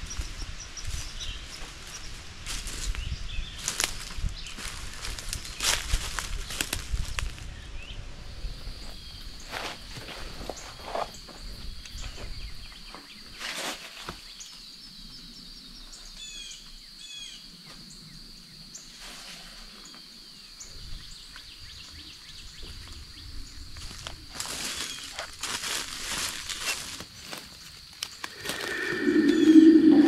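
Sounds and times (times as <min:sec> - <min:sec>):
high insect drone: 0:23.5 - 0:30.0
footsteps in leaf litter: 0:24.3 - 0:27.7
bird chirps: 0:28.3 - 0:30.0.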